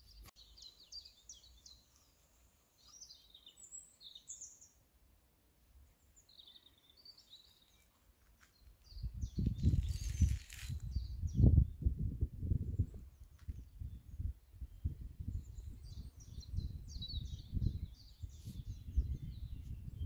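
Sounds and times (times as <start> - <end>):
songbirds chirping: 0.0 - 20.0
wind buffeting microphone: 8.8 - 20.0.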